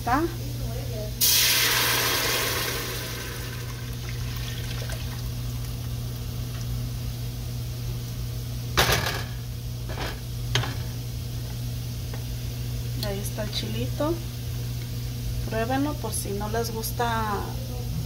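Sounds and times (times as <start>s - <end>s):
liquid pouring into pot: 1.2s - 6.8s
salsa sizzling in hot oil: 1.2s - 8.6s.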